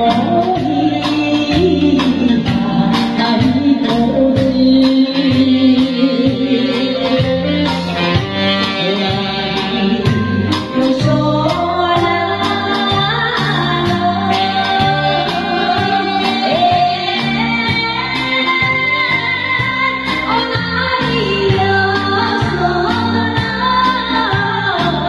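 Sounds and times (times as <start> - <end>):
live band with guitar and keyboard: 0.0 - 25.0
woman singing into a microphone: 0.0 - 25.0.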